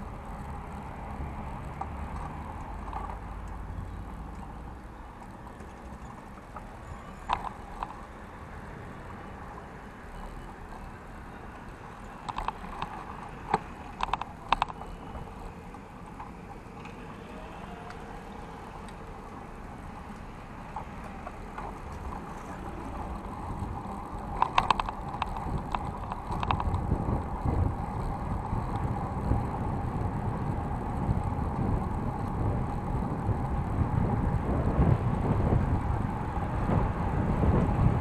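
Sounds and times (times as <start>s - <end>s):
tyres and wind rumble: 0.0s - 38.0s
bike clicks and rattles: 1.5s - 8.2s, 10.2s - 17.2s, 17.8s - 38.0s.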